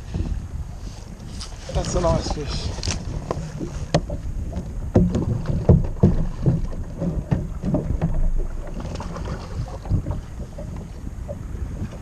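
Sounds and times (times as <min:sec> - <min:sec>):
water against kayak hull: 0:00.0 - 0:12.0
wind on microphone: 0:00.0 - 0:12.0
fish splashing and knocking: 0:02.9 - 0:12.0.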